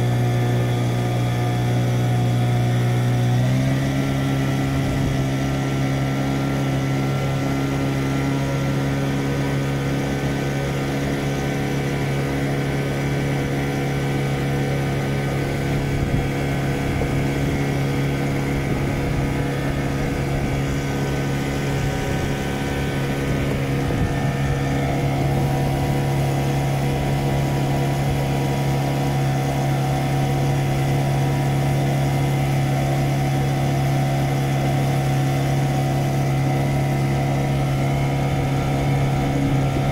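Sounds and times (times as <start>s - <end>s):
boat motor droning: 0.0s - 39.9s.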